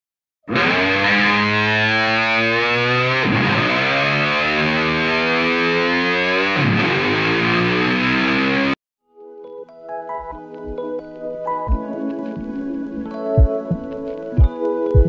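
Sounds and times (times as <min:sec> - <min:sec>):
distorted electric guitar chords: 0:00.5 - 0:08.8.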